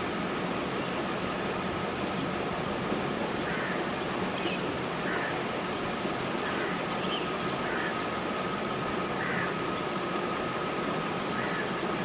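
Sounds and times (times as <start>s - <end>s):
outdoor hiss: 0.0s - 12.0s.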